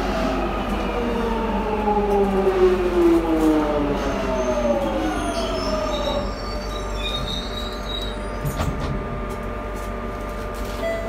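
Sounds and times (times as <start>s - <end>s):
standing train hum: 0.0s - 11.0s
wheel and brake squeals: 4.3s - 8.6s
train clunk: 4.7s - 11.0s.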